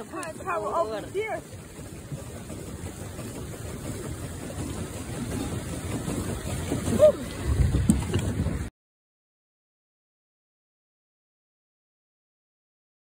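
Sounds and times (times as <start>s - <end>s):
water churning: 0.0s - 8.7s
wind on microphone: 0.0s - 8.7s.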